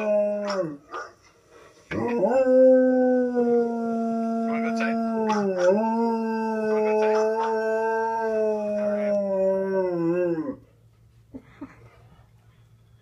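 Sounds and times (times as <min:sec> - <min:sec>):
dog howling: 0:00.0 - 0:00.8, 0:02.0 - 0:10.6.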